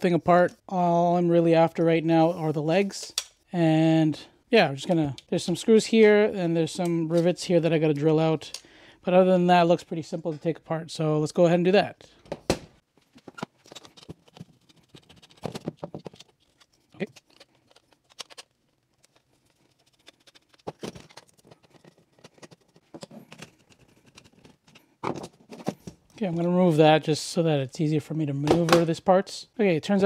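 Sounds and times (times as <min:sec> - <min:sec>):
metal and plastic parts clicking: 0:13.3 - 0:26.0.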